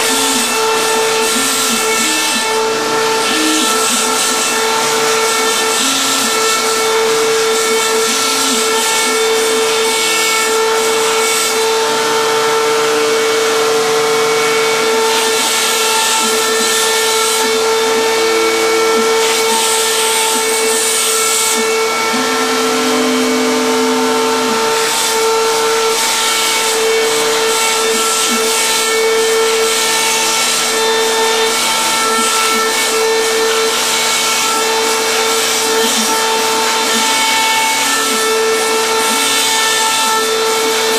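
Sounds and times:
spindle whine: 0:00.0 - 0:11.0, 0:21.1 - 0:26.0.

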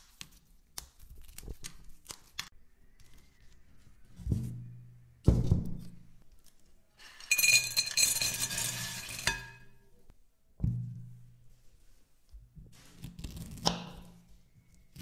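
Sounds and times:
biscuits rattling into glass bowl: 0:07.0 - 0:09.7.

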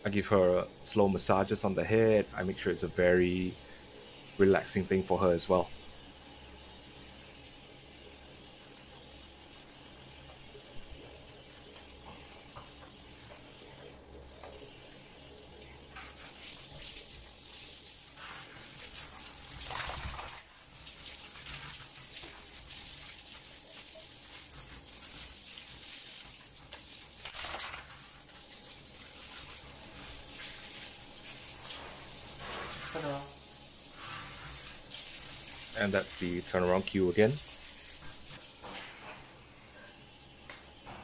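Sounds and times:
shower head spraying water: 0:15.9 - 0:38.9.

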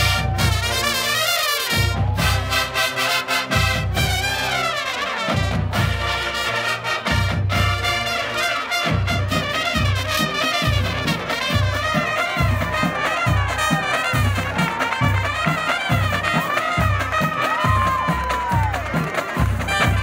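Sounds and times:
bass drum beat: 0:00.0 - 0:00.9, 0:01.8 - 0:02.8, 0:10.6 - 0:20.0
marching band playing: 0:00.0 - 0:20.0.

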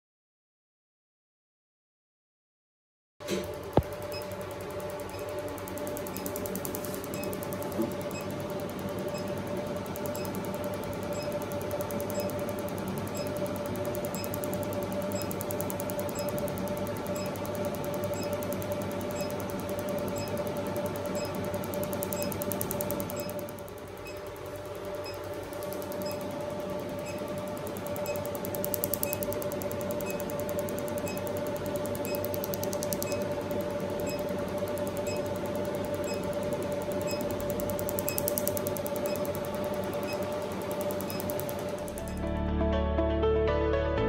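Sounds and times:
console pitched hum: 0:03.2 - 0:44.0
laser fast ticking: 0:04.0 - 0:42.2.

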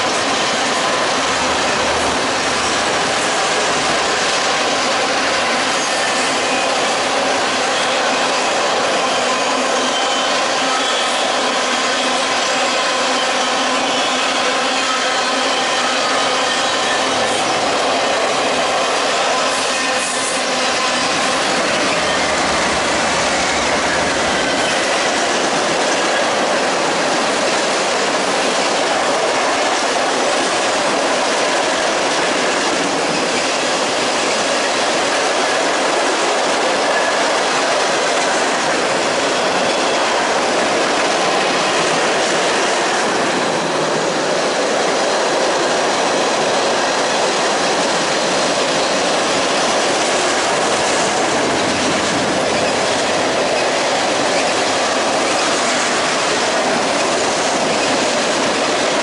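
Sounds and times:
train wheels clattering on rails: 0:00.0 - 0:59.0
high wheel squeal: 0:05.6 - 0:17.9, 0:18.6 - 0:26.3, 0:52.3 - 0:55.9.

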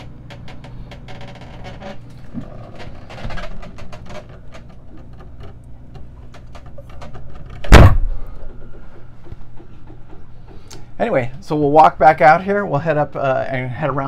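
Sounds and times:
wooden hatch being lowered: 0:00.0 - 0:10.6
loud thump: 0:07.6 - 0:08.3.

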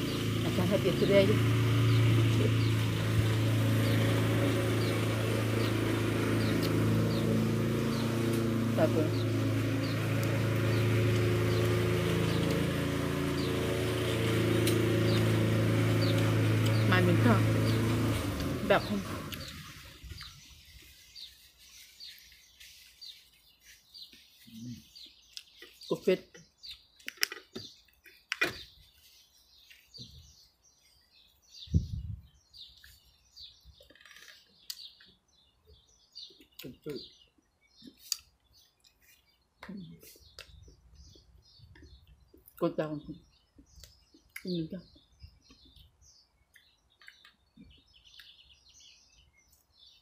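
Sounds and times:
low machine droning hum: 0:00.0 - 0:20.3
small birds chirping: 0:00.0 - 0:50.0.

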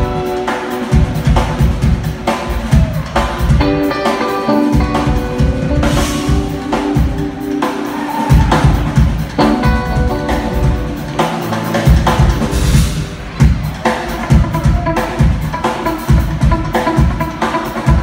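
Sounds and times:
electric guitar: 0:00.0 - 0:13.3
drum kit beat: 0:00.0 - 0:18.0.

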